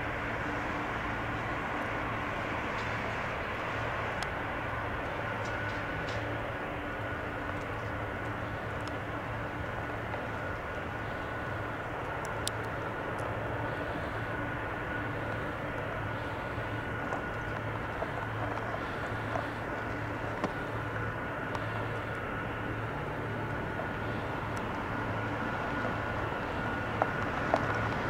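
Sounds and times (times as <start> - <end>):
jet engines idling: 0.0 - 28.0.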